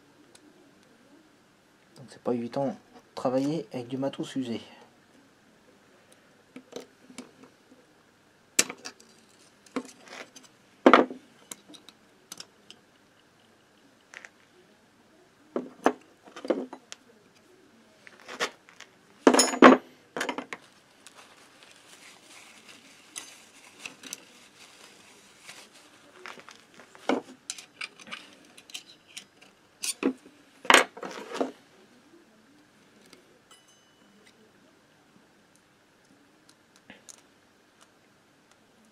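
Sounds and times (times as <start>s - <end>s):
metal tools clinking on metal: 19.3s - 20.5s.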